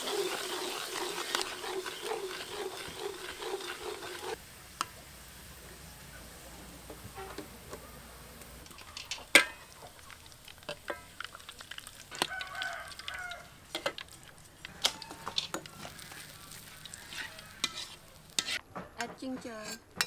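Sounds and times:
metal utensils scraping a wok: 0.0s - 4.4s, 8.6s - 12.6s, 13.7s - 18.6s, 19.5s - 20.0s
chicken calling: 12.1s - 13.7s, 14.7s - 18.2s.

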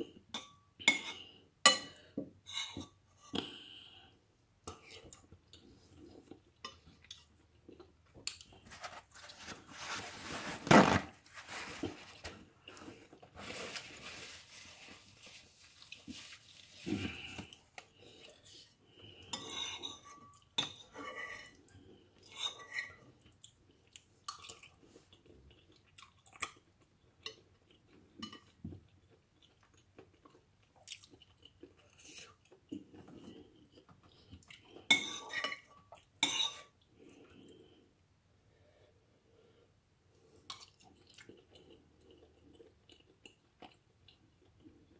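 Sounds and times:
person chewing: 4.8s - 8.6s, 23.2s - 34.9s, 40.2s - 44.9s
cutlery clinking on ceramic bowl: 19.3s - 21.4s.

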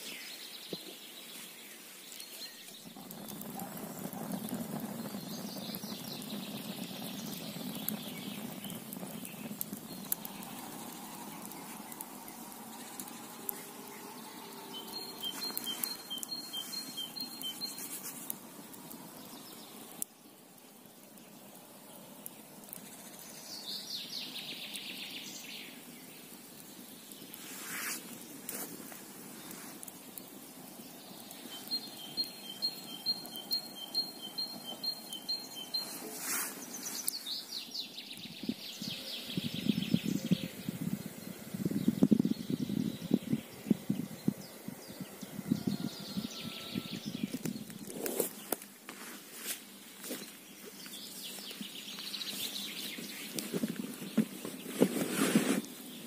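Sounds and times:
songbirds singing: 0.0s - 27.5s, 29.2s - 48.7s, 49.7s - 56.0s
campfire crackling and popping: 0.0s - 56.0s
low rustling: 52.1s - 56.0s.

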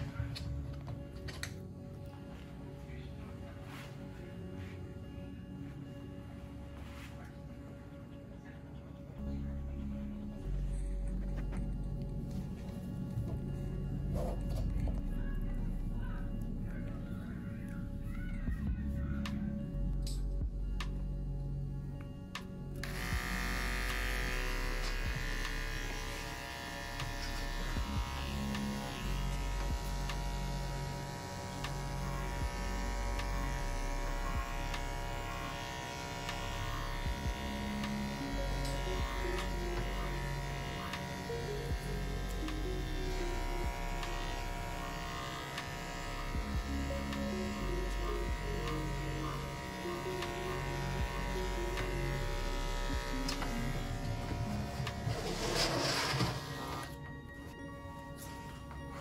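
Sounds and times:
background music with bass: 0.0s - 59.0s
electric clippers buzzing: 22.8s - 57.0s.

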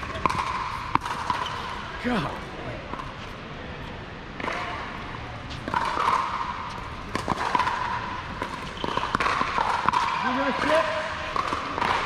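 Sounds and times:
pickleball bouncing and hitting paddle: 0.0s - 1.8s, 4.4s - 4.9s, 5.5s - 12.0s.

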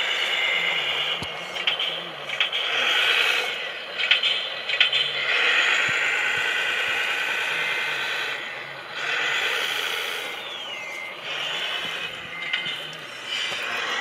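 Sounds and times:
rc truck motor whining: 0.0s - 14.0s.

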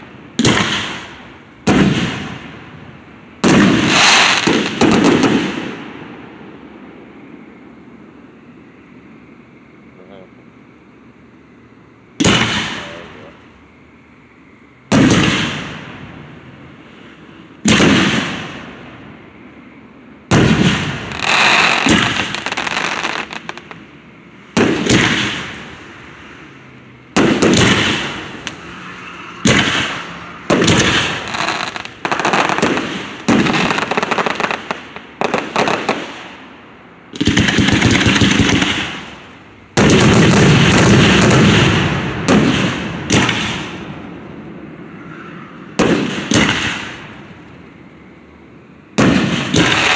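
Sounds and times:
fireworks bursting with crackling: 0.0s - 6.0s, 12.2s - 13.3s, 14.9s - 18.8s, 20.3s - 26.5s, 27.1s - 44.2s, 45.8s - 47.5s, 49.0s - 49.9s.

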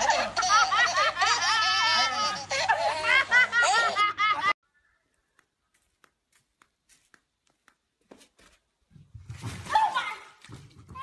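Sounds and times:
woman laughing loudly: 0.0s - 4.6s.

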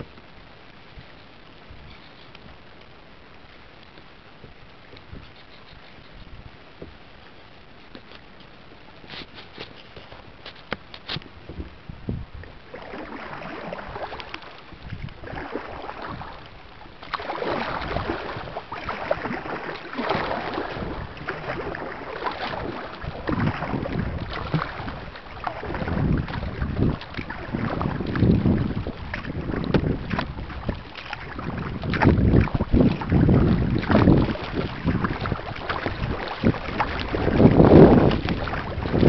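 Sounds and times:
wind rumbling on microphone: 0.0s - 39.0s
water splashing from paddling: 12.3s - 39.0s.

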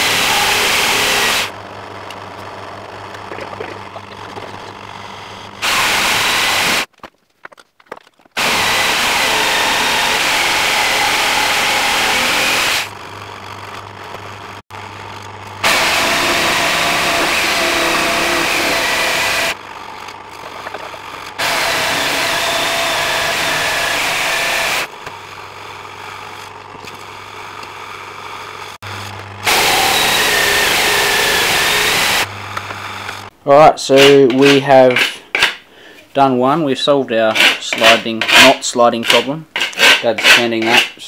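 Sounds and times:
electric jigsaw cutting wood: 0.0s - 3.2s, 4.8s - 6.9s, 8.4s - 13.0s, 14.8s - 24.9s, 28.8s - 33.3s.

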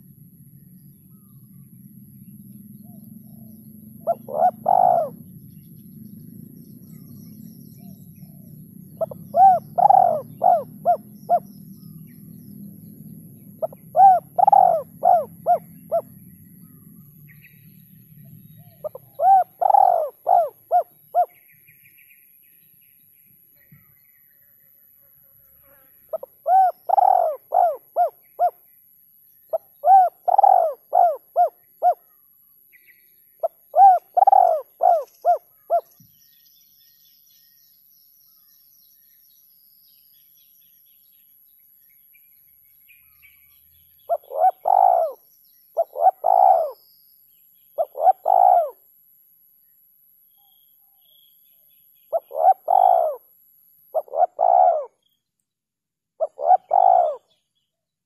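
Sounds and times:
dove cooing: 2.8s - 5.3s, 7.8s - 11.6s, 13.4s - 16.8s, 18.6s - 21.4s, 26.1s - 28.6s, 29.5s - 32.0s, 33.4s - 35.9s, 44.1s - 45.2s, 45.8s - 46.8s, 47.8s - 48.8s, 52.1s - 53.2s, 53.9s - 55.0s, 56.2s - 57.2s.

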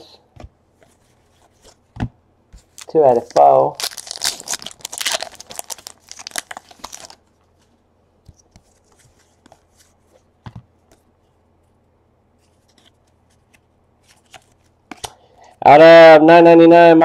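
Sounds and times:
foil wrapper crinkling: 2.7s - 7.2s
cards sliding and tapping: 12.4s - 15.2s.

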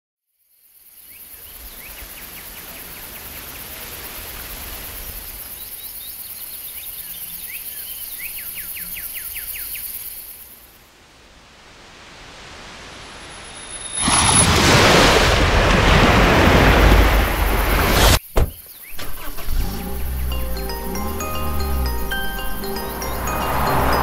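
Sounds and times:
insect chorus: 0.4s - 11.0s, 13.2s - 21.2s.

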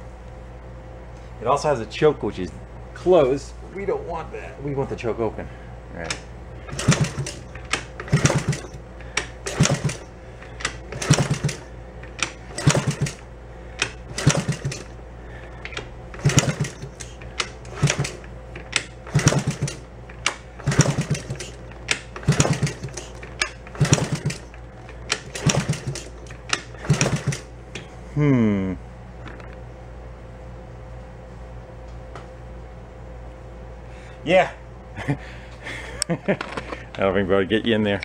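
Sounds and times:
engine kick starter clicking: 6.1s - 13.2s, 13.8s - 15.0s, 15.6s - 27.5s
small engine spinning over: 6.6s - 8.8s, 9.4s - 13.2s, 13.9s - 15.0s, 16.1s - 19.9s, 20.6s - 27.5s.

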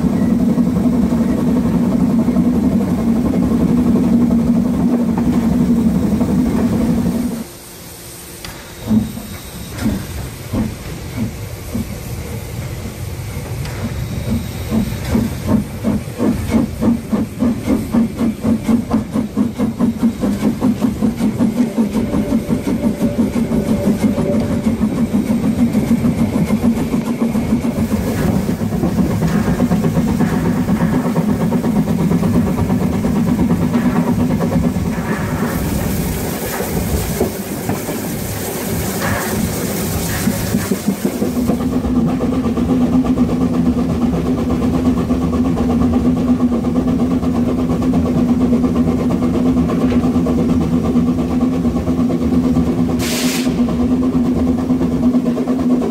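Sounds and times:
steam hiss: 0.0s - 42.5s, 52.9s - 54.0s
steam locomotive exhaust chuffs: 0.0s - 55.9s.

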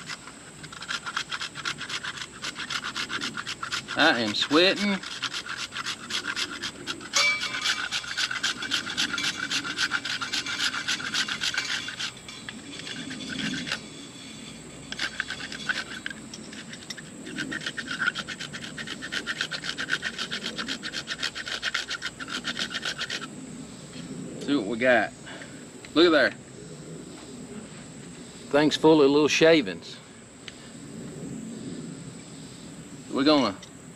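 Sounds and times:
wood shaving scraping strokes: 0.0s - 23.3s.

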